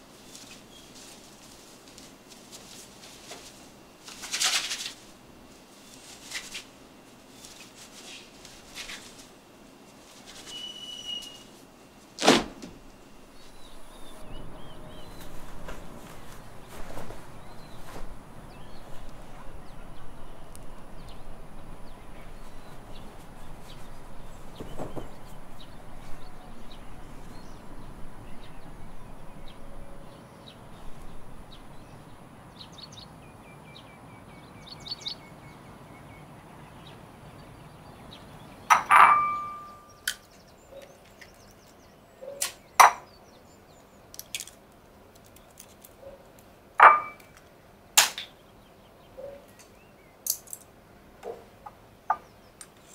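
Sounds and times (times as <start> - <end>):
bird chirps: 10.4 - 11.6, 28.2 - 44.0
dishes clinking on tiled counter: 38.7 - 40.0, 46.8 - 47.3.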